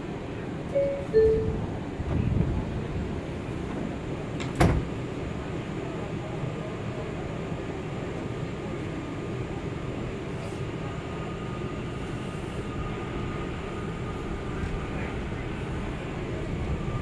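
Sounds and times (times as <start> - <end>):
subway train wheels rumbling: 0.0 - 17.0
faint high tone: 0.7 - 1.7.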